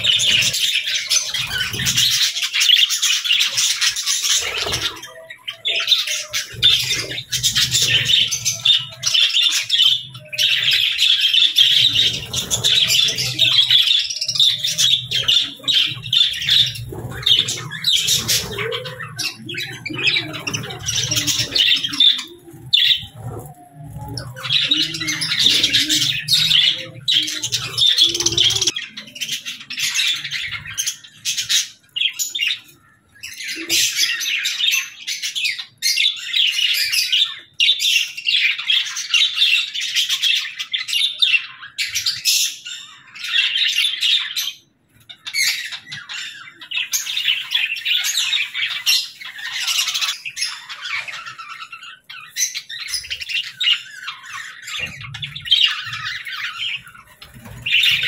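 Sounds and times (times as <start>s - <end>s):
budgerigars chattering: 0.0s - 58.0s.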